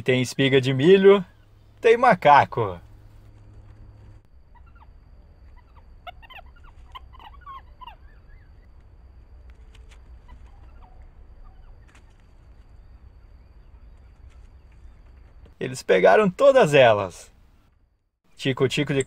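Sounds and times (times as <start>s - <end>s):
steady low rumble: 0.1s - 16.4s
high chirping animal calls: 4.4s - 8.8s, 10.1s - 12.0s.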